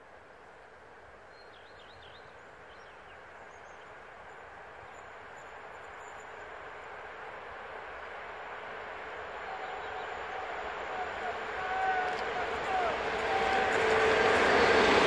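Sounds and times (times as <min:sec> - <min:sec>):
distant train rushing: 0:04.7 - 0:15.0.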